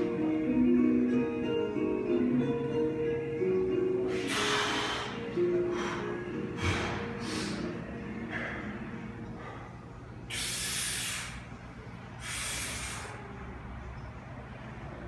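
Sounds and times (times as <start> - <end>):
man breathing heavily: 4.0 - 11.6, 12.2 - 13.3.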